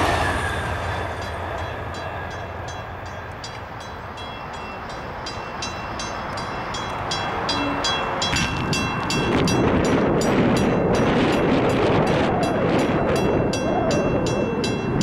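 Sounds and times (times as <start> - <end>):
rushing noise: 0.0 - 4.2
crossing bell ringing: 0.0 - 15.0
train rumble: 0.0 - 15.0.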